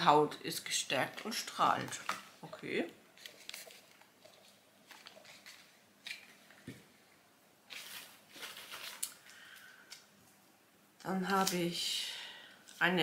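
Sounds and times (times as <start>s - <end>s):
packaging rustle: 3.2s - 6.6s, 7.7s - 9.7s.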